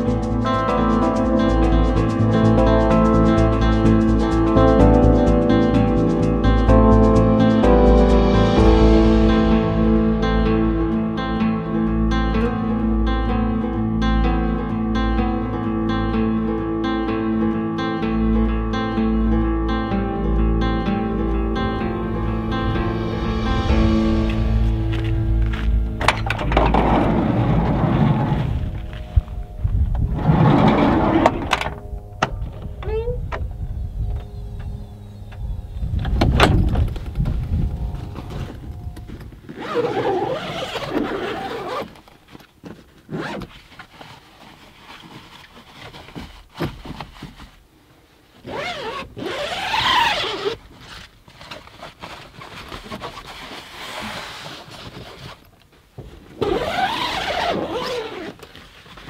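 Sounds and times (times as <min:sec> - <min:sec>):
heavy door thunks: 0:36.0 - 0:37.4
zips rasping open: 0:39.5 - 0:42.2, 0:43.1 - 0:43.9, 0:48.4 - 0:55.5, 0:56.4 - 0:58.7.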